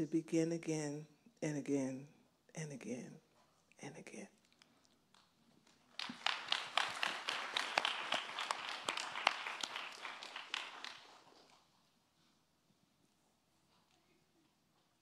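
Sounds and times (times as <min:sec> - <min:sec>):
audience applauding: 0:05.7 - 0:11.6.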